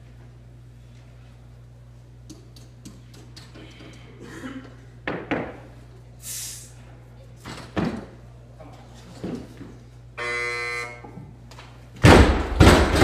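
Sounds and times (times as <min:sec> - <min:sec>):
sharp hiss: 0:06.2 - 0:06.8.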